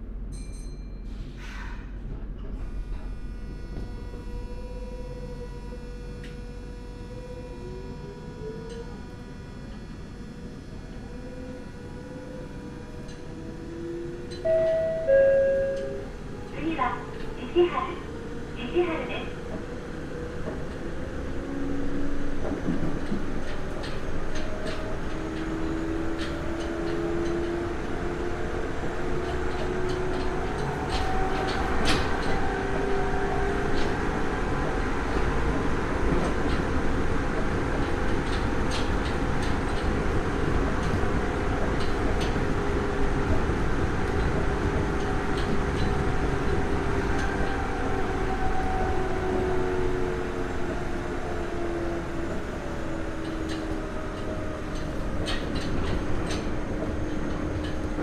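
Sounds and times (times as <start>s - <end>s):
wheels rumbling on rail: 0.0s - 58.0s
electric train motor whine: 2.4s - 16.6s.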